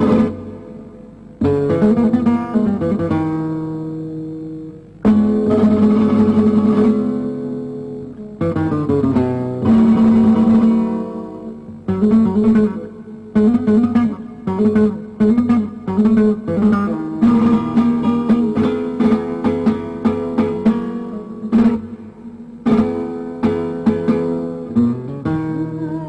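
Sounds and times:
flamenco guitar: 0.0 - 26.0.

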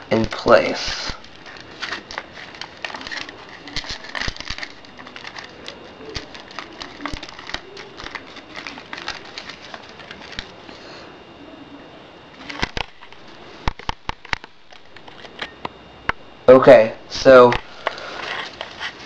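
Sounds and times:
foil and paper crinkling: 0.0 - 10.6, 12.4 - 15.5, 17.7 - 19.0.

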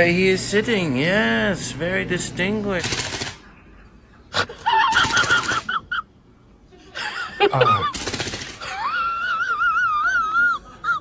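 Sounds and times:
long high-pitched wavering cry: 8.6 - 11.0.

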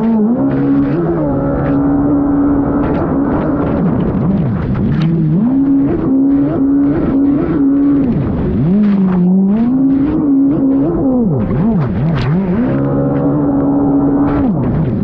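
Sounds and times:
jet ski engine revving: 0.0 - 15.0
water slapping hull: 0.0 - 15.0.

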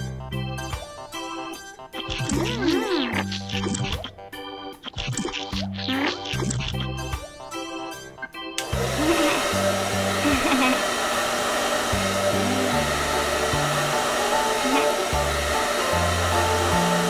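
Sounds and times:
background music with bass line: 0.0 - 9.0
hair dryer blowing: 8.6 - 17.0.

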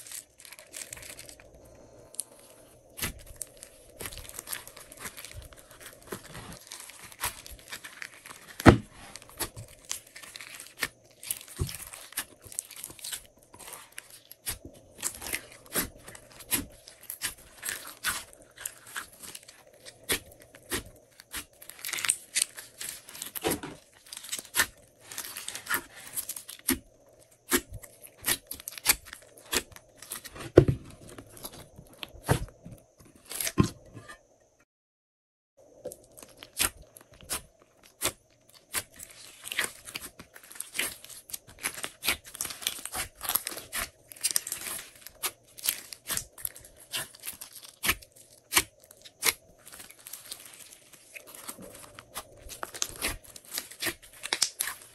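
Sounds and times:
plastic crinkling: 0.0 - 26.7, 35.8 - 54.9
faint steady hum: 0.0 - 34.6
slime crackling and popping: 2.1 - 26.8, 27.5 - 30.2, 36.0 - 54.9.

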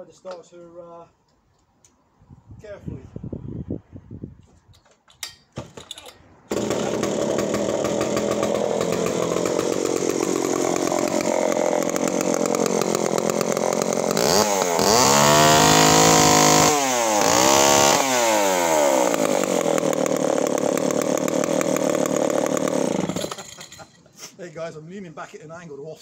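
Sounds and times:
chainsaw idling and revving: 6.5 - 23.9.

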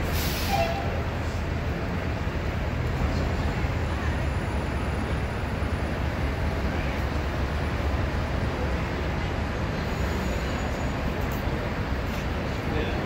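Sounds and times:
urban background rumble and hiss: 0.0 - 13.0.

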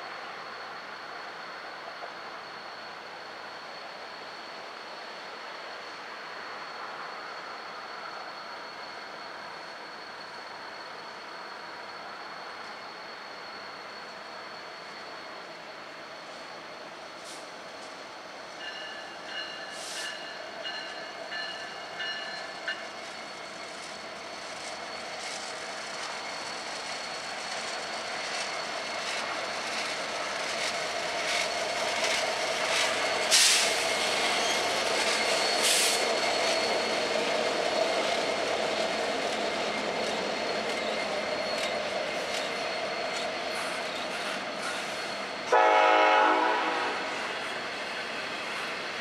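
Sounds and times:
diesel locomotive engines: 0.0 - 49.0
train wheels clicking over rails: 18.8 - 45.5.

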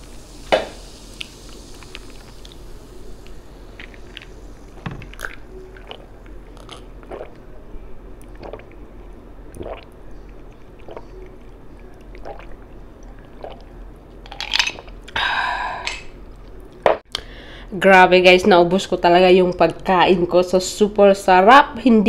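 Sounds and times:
person gulping water: 5.1 - 7.4, 8.2 - 8.8, 9.5 - 15.2.

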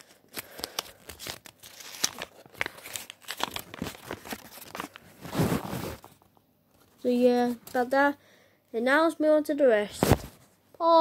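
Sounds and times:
packaging crinkling and tearing: 0.0 - 6.1.

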